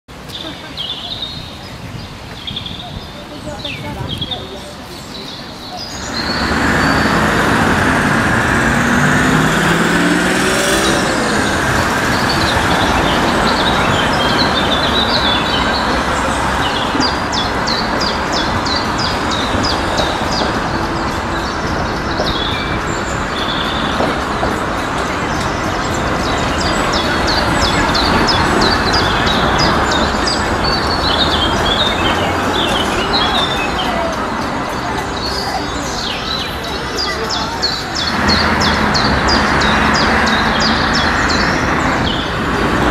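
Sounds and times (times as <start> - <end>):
birds chirping: 0.1 - 42.9
cars and trams passing: 0.1 - 42.9
car engine rising in pitch: 6.0 - 16.6, 38.1 - 42.9.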